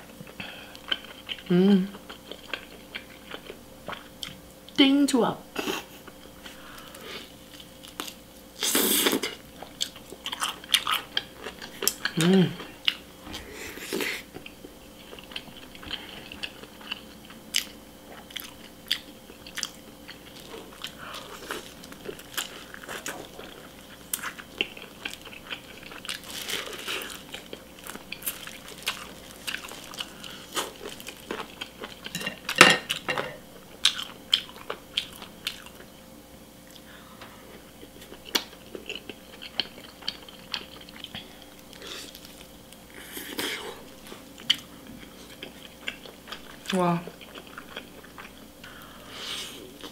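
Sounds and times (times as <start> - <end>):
person biting and chewing food: 6.4 - 32.2.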